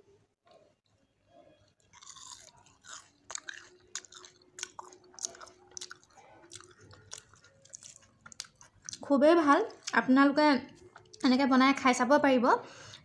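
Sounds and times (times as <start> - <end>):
crunching fried potato: 1.5 - 10.1.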